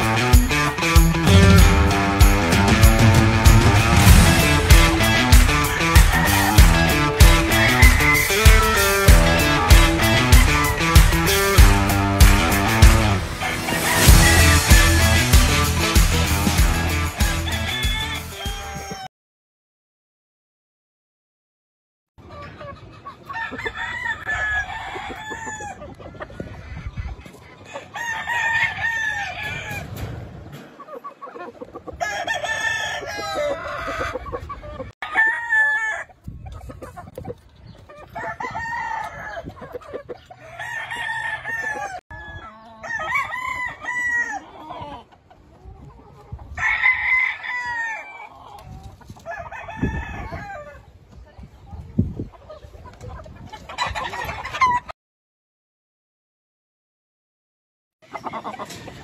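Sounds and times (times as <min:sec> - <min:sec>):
roosters crowing: 0:00.0 - 0:19.1, 0:23.3 - 0:25.9, 0:27.6 - 0:30.0, 0:31.9 - 0:34.3, 0:35.0 - 0:36.2, 0:38.0 - 0:45.1, 0:46.5 - 0:48.5, 0:49.2 - 0:50.8.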